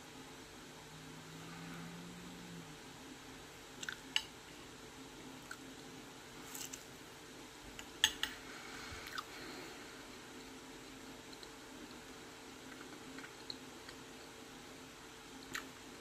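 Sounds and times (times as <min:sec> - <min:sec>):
faint steady hum: 0:00.0 - 0:16.0
soft chewing: 0:07.8 - 0:14.4, 0:15.3 - 0:15.9
metal fork clicking on plate: 0:08.0 - 0:08.4.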